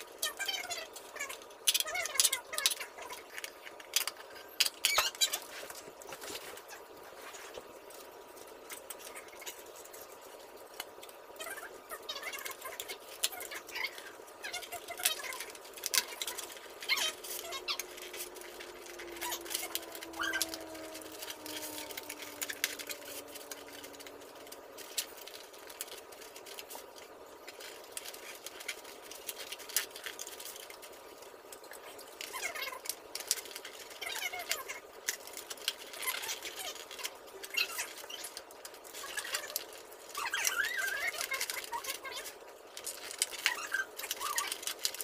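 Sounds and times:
cardboard squeaking and rubbing: 11.4 - 27.0, 39.0 - 42.3.

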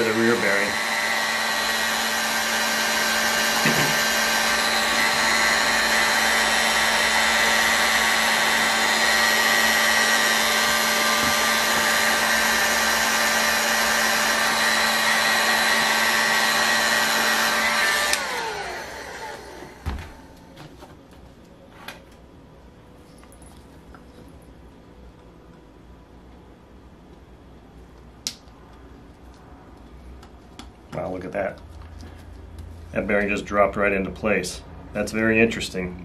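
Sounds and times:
heat gun blowing: 0.0 - 20.3
fan winding down: 0.0 - 20.5.

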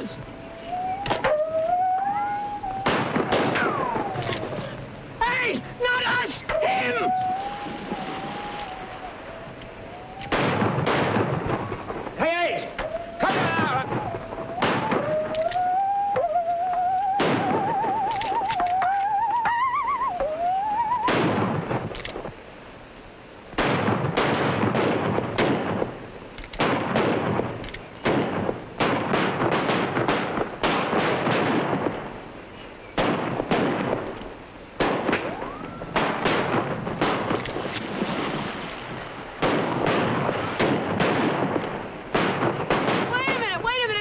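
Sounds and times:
rapid rifle gunfire: 28.0 - 31.9, 36.0 - 37.4, 39.4 - 43.5.

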